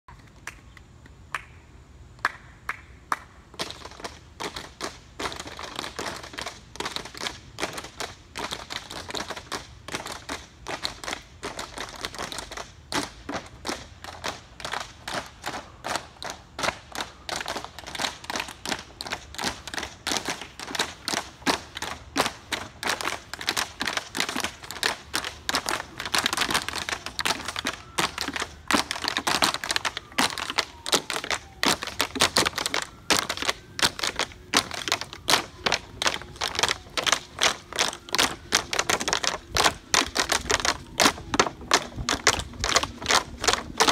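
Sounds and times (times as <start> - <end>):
tap shoes tapping on boards: 3.5 - 43.9.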